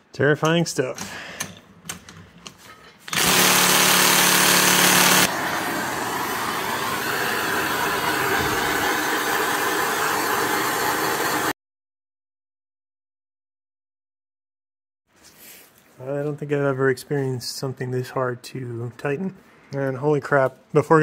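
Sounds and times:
blowtorch flame hissing: 0:04.8 - 0:11.5
loud rushing noise with hum: 0:05.3 - 0:11.5.

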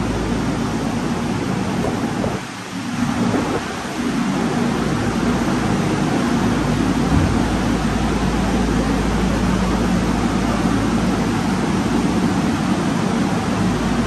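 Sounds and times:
low hum: 0:06.3 - 0:10.6
loud rushing noise: 0:06.8 - 0:08.8.

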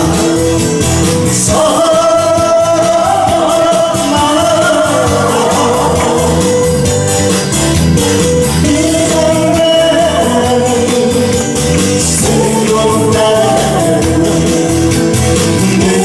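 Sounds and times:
man singing into a microphone: 0:00.0 - 0:07.0, 0:08.5 - 0:16.0
backing track through speaker: 0:00.0 - 0:16.0.

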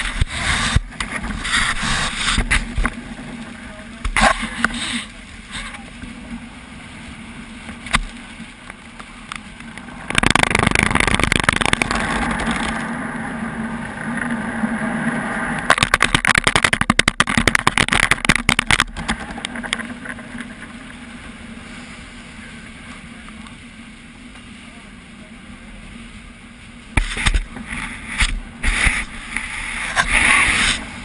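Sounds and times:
water spraying against car: 0:00.0 - 0:31.0
rapid hits: 0:10.1 - 0:12.7, 0:15.7 - 0:19.1.

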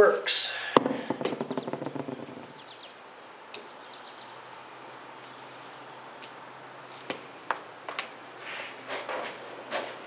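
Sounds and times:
faint bird chirps: 0:03.6 - 0:04.5.

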